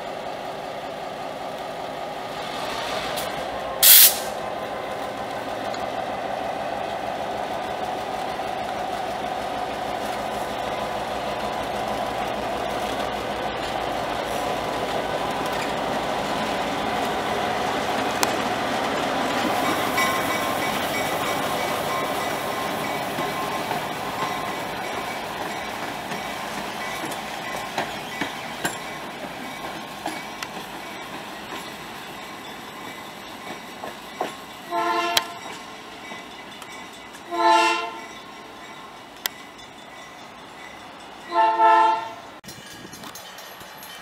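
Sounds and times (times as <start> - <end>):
diesel locomotive engine drone: 0.0 - 44.0
loud hiss: 2.3 - 4.5.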